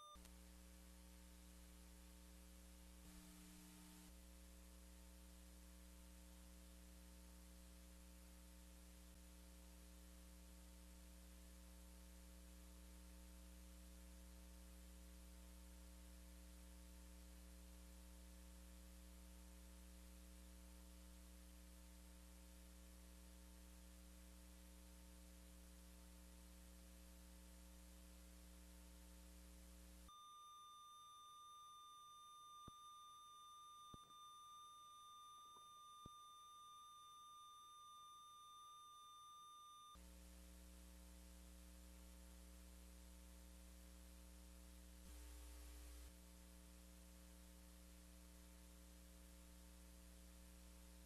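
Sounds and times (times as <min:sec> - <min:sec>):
faint high tone: 0:00.0 - 0:00.2, 0:30.1 - 0:40.0
faint steady hum: 0:00.0 - 0:51.0.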